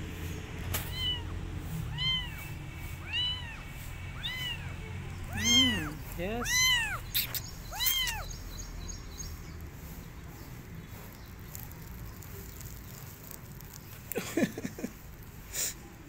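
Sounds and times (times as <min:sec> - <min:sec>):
kitten meowing: 0:00.8 - 0:08.4.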